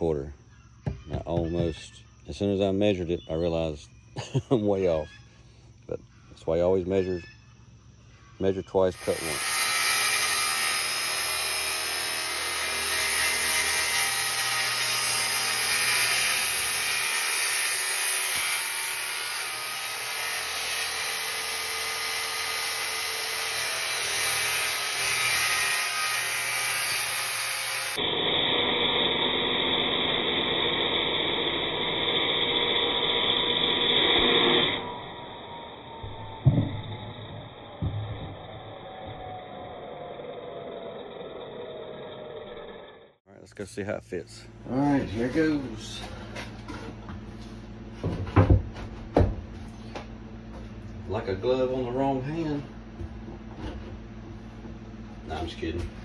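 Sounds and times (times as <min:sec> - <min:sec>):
circular saw cutting wood: 0:08.8 - 0:43.2, 0:44.7 - 0:46.5.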